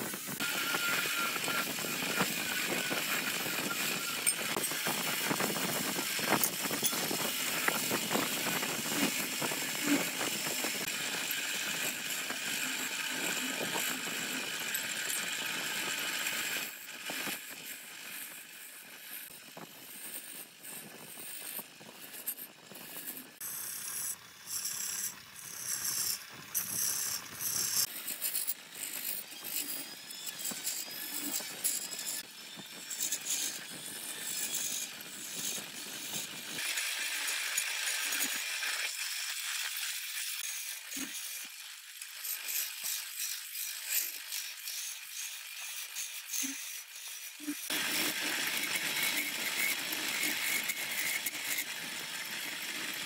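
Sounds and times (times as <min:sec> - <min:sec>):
wood lathe whining: 0:00.0 - 0:53.0
chisel scraping wood: 0:00.4 - 0:14.4, 0:19.0 - 0:32.3, 0:45.6 - 0:53.0.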